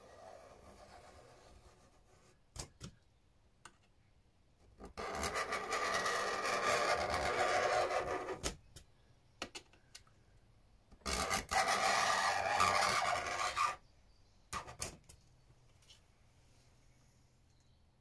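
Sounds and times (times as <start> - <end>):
knife scraping perspex: 11.1 - 13.8.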